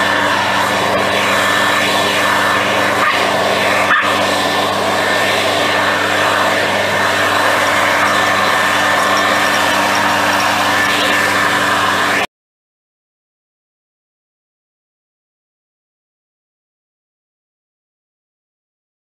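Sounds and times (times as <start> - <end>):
leaf blower running: 0.0 - 12.3.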